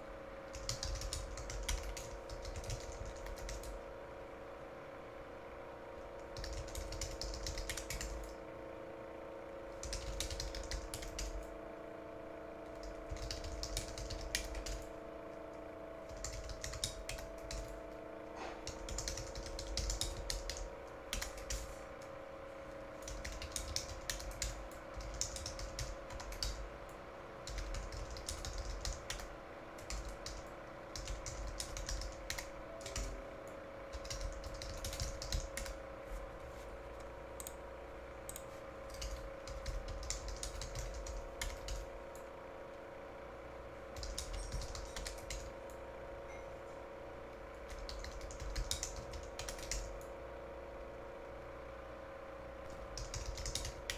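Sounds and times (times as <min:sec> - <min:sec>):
steady hum: 0:00.0 - 0:53.9
keyboard typing clicks: 0:00.5 - 0:03.8, 0:06.4 - 0:08.4, 0:09.8 - 0:11.5, 0:12.6 - 0:14.9, 0:16.1 - 0:17.9, 0:18.6 - 0:22.1, 0:23.0 - 0:26.6, 0:27.4 - 0:35.8, 0:37.4 - 0:37.6, 0:38.3 - 0:42.2, 0:44.0 - 0:46.6, 0:47.6 - 0:50.1, 0:52.7 - 0:53.9.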